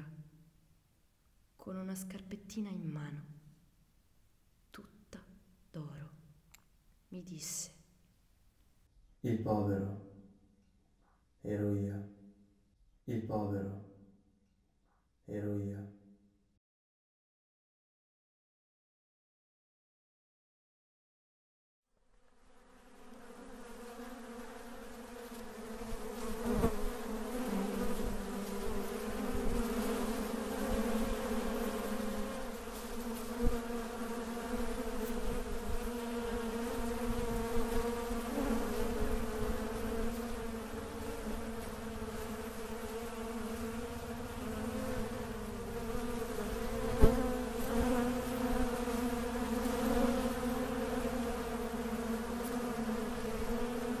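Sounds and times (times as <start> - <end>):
insects buzzing: 22.1 - 54.0.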